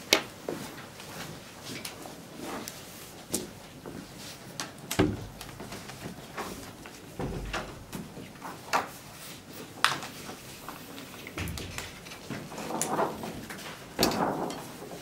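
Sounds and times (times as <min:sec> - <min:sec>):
dull thud: 0:05.0 - 0:05.4, 0:07.2 - 0:08.2, 0:11.4 - 0:12.4.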